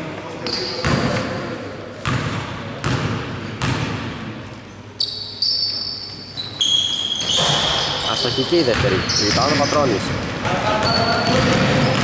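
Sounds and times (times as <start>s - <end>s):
short high squeaks: 5.0s - 8.4s
basketball bouncing on hardwood floor: 8.7s - 10.4s.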